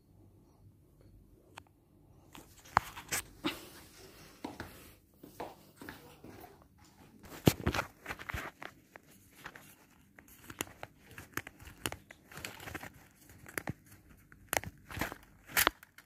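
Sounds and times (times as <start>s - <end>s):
crinkling rustles: 7.2s - 16.0s.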